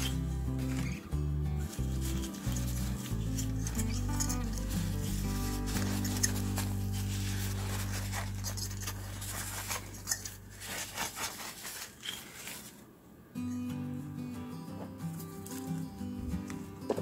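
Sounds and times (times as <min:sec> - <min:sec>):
background music: 0:00.0 - 0:09.9
tissue paper scraping plastic hub: 0:00.0 - 0:12.9.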